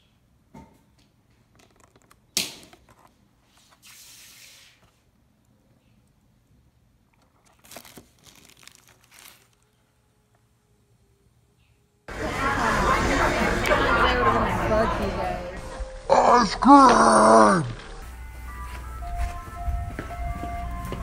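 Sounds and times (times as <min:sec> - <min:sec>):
packaging rustling and clicks: 0:07.2 - 0:09.7
packaging snapping: 0:07.2 - 0:09.7
packaging tearing: 0:07.2 - 0:09.8.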